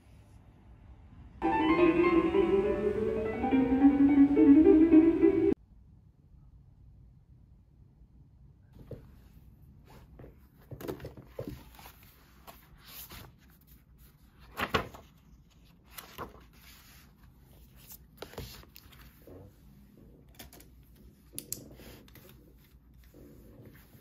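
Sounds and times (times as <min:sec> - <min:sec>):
paper planner being handled: 0:09.9 - 0:19.5
paper rustling: 0:10.2 - 0:19.2.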